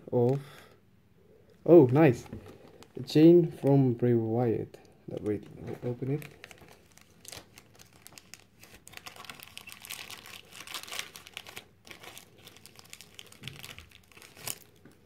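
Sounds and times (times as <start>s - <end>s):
plastic bag crinkling: 1.5s - 3.2s, 4.8s - 15.0s.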